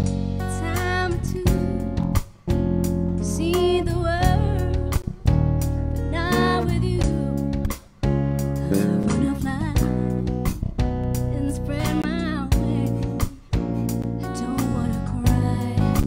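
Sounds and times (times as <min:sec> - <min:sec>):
bass guitar: 0:00.0 - 0:16.0
woman singing wordless phrases: 0:00.5 - 0:02.0, 0:03.2 - 0:05.1, 0:06.1 - 0:07.5, 0:08.6 - 0:10.1, 0:11.3 - 0:13.4, 0:14.2 - 0:16.0.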